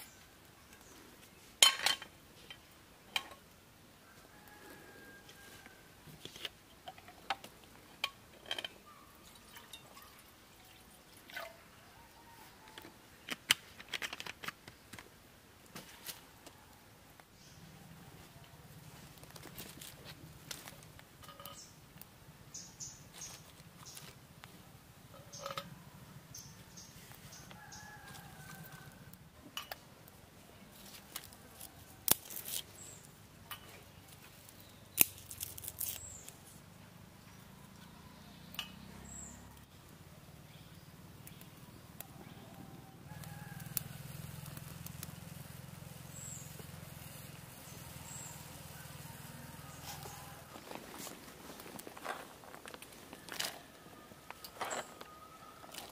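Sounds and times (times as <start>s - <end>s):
rustles: 0.0s - 10.3s, 11.3s - 55.9s
dry twigs snapping: 30.8s - 32.7s, 34.1s - 36.4s.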